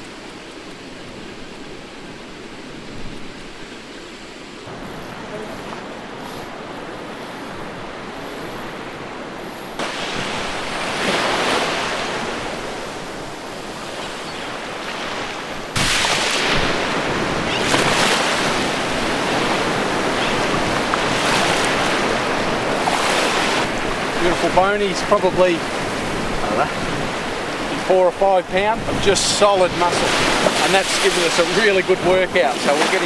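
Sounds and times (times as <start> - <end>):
small waves washing onto sand: 0.0 - 33.0.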